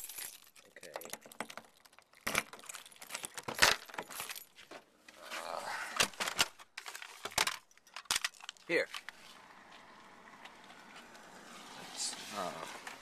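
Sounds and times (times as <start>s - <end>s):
small objects clicking and rattling: 0.0s - 4.4s, 6.2s - 9.2s.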